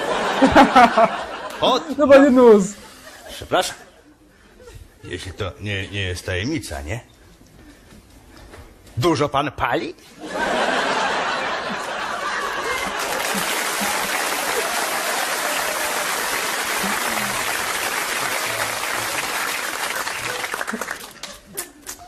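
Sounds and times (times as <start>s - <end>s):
audience laughing: 0.0s - 1.9s, 10.2s - 21.8s
audience applauding: 11.5s - 22.0s.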